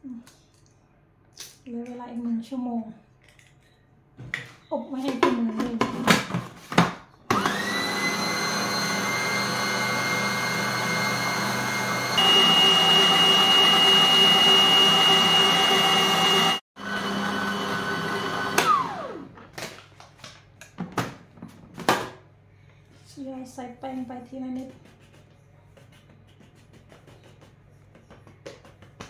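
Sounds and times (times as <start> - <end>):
kitchen mixer motor whining: 7.3 - 19.4.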